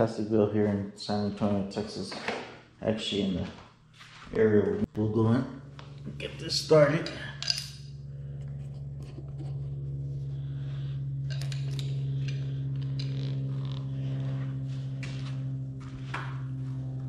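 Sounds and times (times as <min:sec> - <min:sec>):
low mechanical hum: 0:00.0 - 0:17.0
small metal clicks and clinks: 0:07.4 - 0:07.8.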